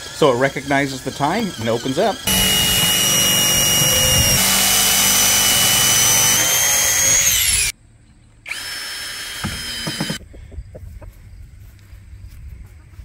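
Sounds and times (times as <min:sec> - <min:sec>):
power drill whining: 0:00.0 - 0:07.7, 0:08.5 - 0:10.2
quieter motor whine: 0:00.0 - 0:07.7, 0:08.4 - 0:10.2.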